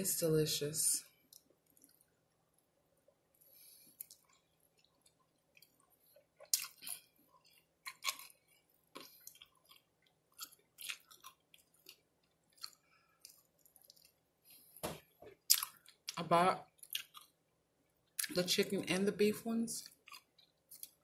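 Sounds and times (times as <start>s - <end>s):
chewing with crunches: 1.2s - 2.7s, 3.5s - 14.6s, 15.3s - 17.4s, 19.8s - 21.0s.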